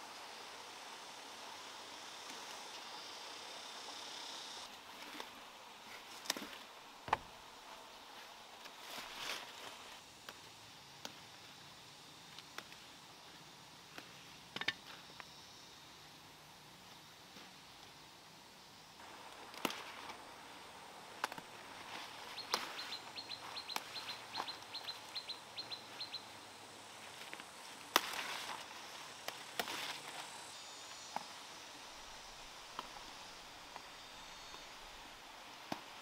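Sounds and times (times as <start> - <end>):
leaves rustling: 0.0 - 15.0, 19.0 - 36.0
plant stems snapping: 19.4 - 20.2, 21.2 - 21.5, 22.4 - 22.8, 23.7 - 24.5, 27.9 - 28.6, 29.2 - 29.9
bird chirping: 22.2 - 26.3.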